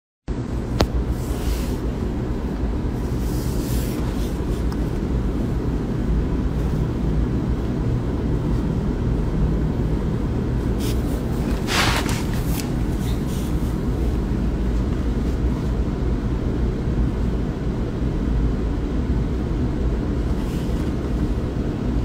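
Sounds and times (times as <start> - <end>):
low machinery rumble with hum: 0.3 - 22.0
soft rustling: 2.9 - 5.4.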